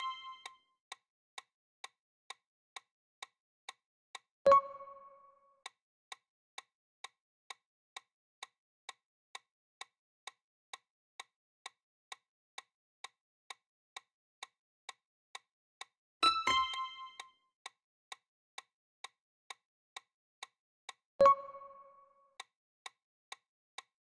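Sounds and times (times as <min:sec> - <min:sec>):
clock-like ticking: 0:00.0 - 0:00.6, 0:04.5 - 0:05.8, 0:13.5 - 0:17.8, 0:18.6 - 0:23.0.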